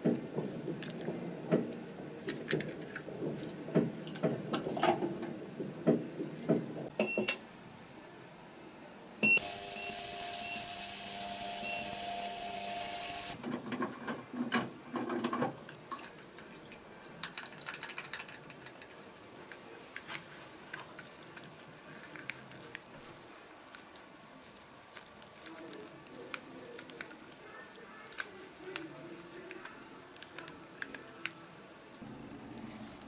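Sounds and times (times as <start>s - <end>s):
ultrasonic cleaner hiss and hum: 7.4s - 13.4s
small metal parts clicking: 17.2s - 18.9s.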